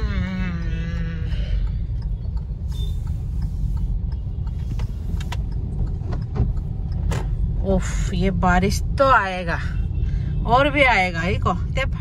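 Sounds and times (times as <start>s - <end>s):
faint ticks: 0.0s - 8.7s
car engine rumble: 0.0s - 12.0s
tyres on wet road: 0.0s - 12.0s.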